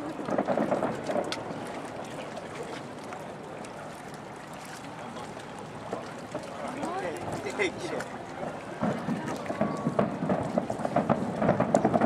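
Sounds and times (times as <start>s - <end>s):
murmur of crowd voices: 0.0s - 12.0s
wind on microphone: 7.1s - 12.0s.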